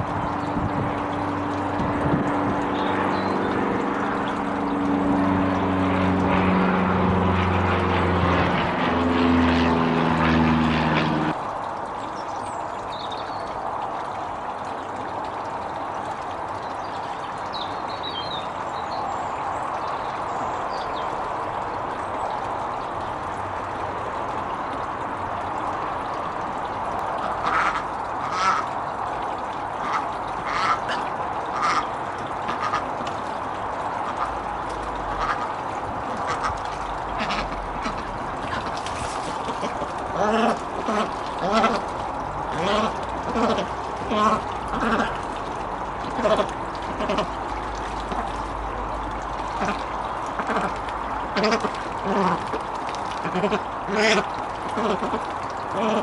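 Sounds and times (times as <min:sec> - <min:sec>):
water trickling and splashing: 0:00.0 - 0:56.0
ducks quacking: 0:27.2 - 0:28.7, 0:29.8 - 0:31.8, 0:32.4 - 0:32.9, 0:35.1 - 0:35.5, 0:36.1 - 0:41.9, 0:42.5 - 0:45.2.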